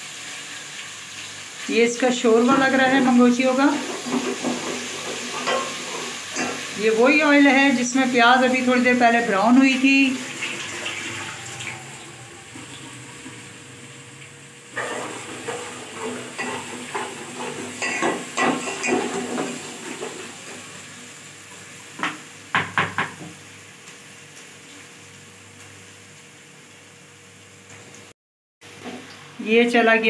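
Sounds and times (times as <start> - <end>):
faint oil sizzle: 0.0 - 22.6, 23.3 - 28.1
utensil scraping a pan: 3.7 - 6.7, 14.7 - 20.6.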